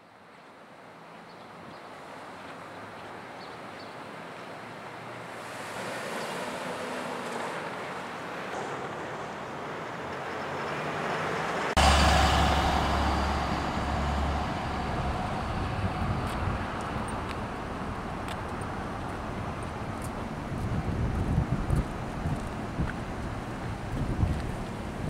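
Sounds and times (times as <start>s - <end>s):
road traffic: 0.8s - 25.0s
wind buffeting microphone: 11.8s - 25.0s.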